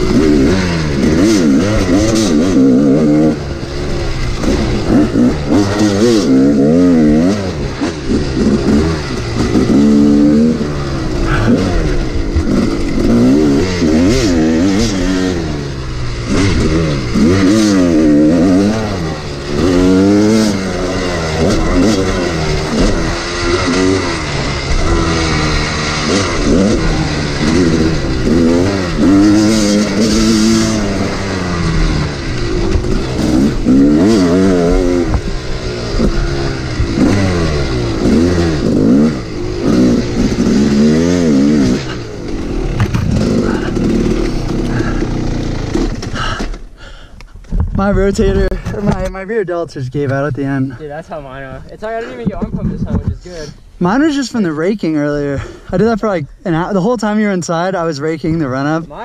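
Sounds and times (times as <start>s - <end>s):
dirt bike engine revving: 0.0s - 46.9s.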